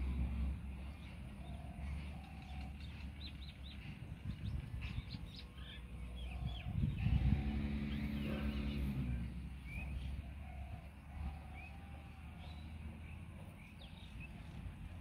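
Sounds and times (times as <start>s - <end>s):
small birds chirping: 0.8s - 11.8s.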